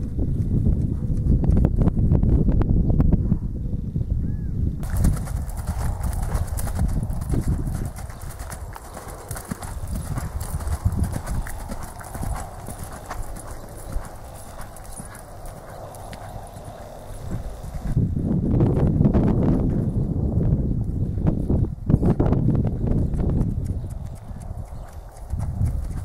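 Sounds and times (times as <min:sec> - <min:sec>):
horse hooves on sand: 0:04.8 - 0:18.2, 0:21.3 - 0:26.0.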